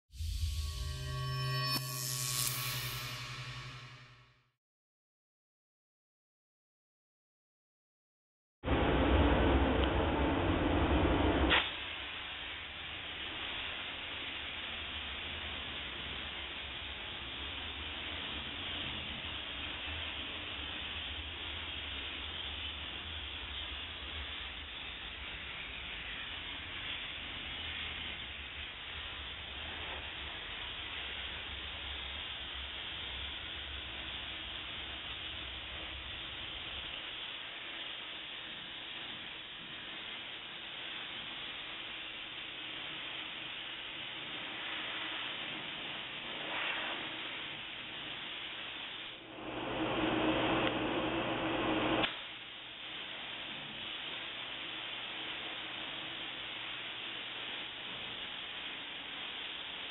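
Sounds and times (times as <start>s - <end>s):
steam jet hissing: 0.1s - 4.2s, 8.7s - 59.9s
low hum: 0.1s - 4.4s
steady hum: 0.2s - 4.3s, 8.7s - 58.4s.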